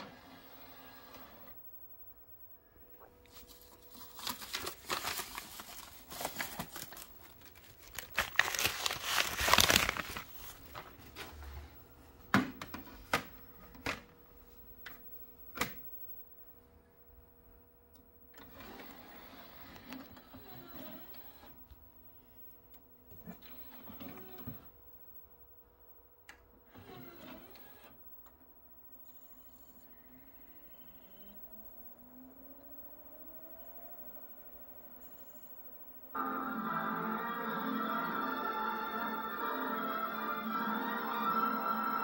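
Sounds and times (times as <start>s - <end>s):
paper sleeve crinkling: 3.3s - 11.0s.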